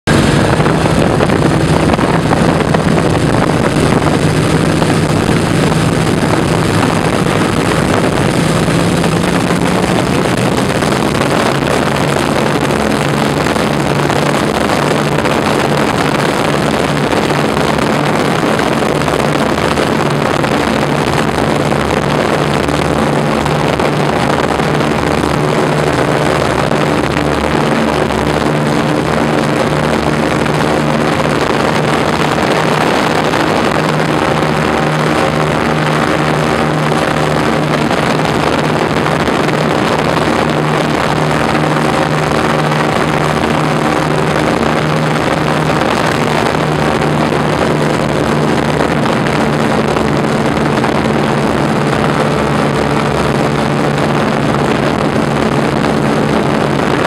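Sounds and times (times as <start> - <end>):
aircraft engines running: 0.0 - 57.0.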